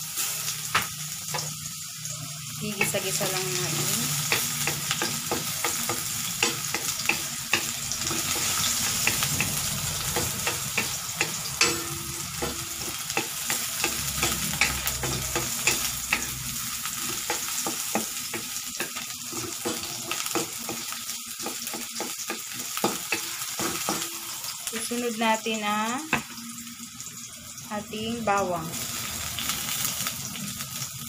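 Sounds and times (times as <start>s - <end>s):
ginger sizzling in oil: 0.0s - 31.0s
spatula scraping wok: 2.7s - 24.8s.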